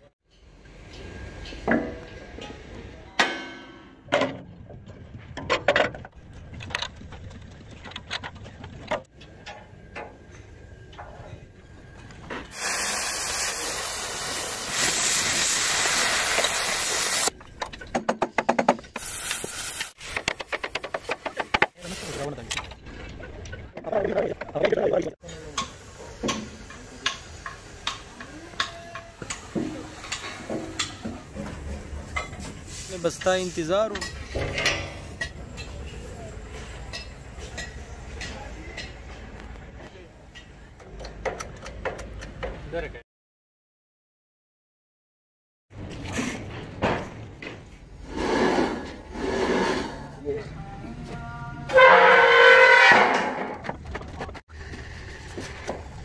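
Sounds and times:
tools striking steel: 1.7s - 4.0s.

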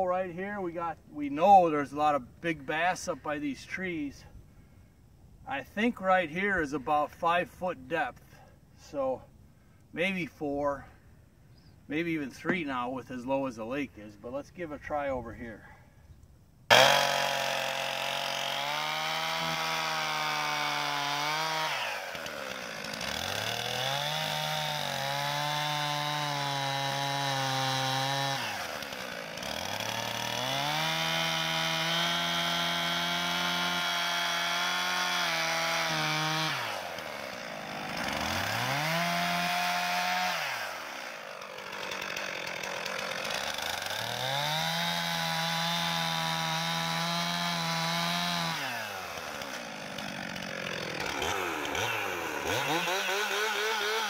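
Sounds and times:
chainsaw cutting ice: 16.7s - 54.0s.

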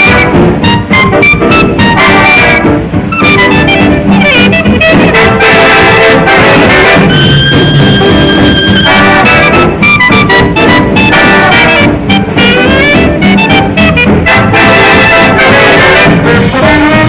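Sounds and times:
swing jazz with brass: 0.0s - 17.0s.

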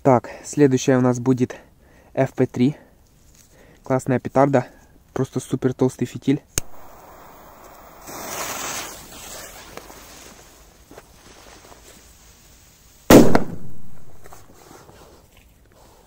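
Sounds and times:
firecracker bang: 6.6s - 9.2s, 13.1s - 14.4s
fuse hissing: 6.6s - 9.9s.

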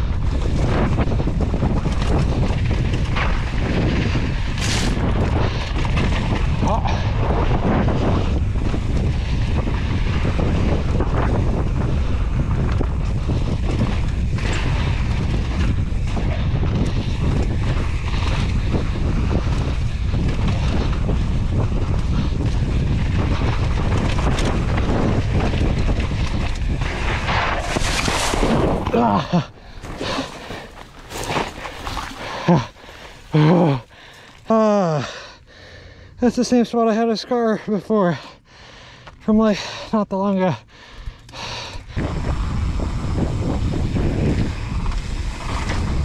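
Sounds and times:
bike knocks and rattles: 0.0s - 32.1s
wind buffeting microphone: 0.0s - 37.0s, 40.6s - 46.0s
tyres rolling over dirt trail: 0.0s - 46.0s.

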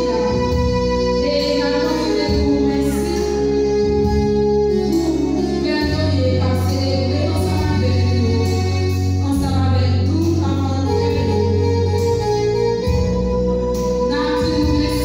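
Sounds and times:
held bass notes: 0.0s - 15.0s.

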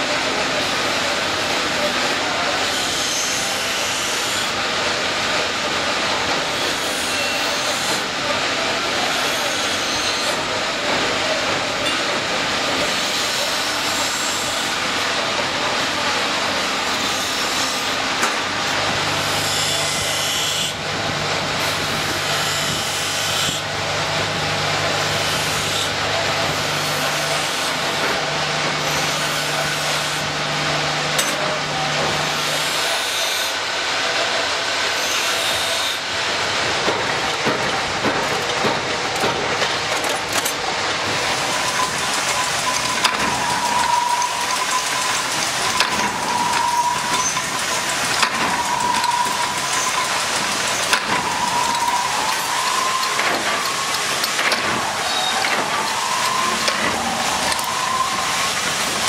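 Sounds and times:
metal grinding on wheel: 36.7s - 59.0s.

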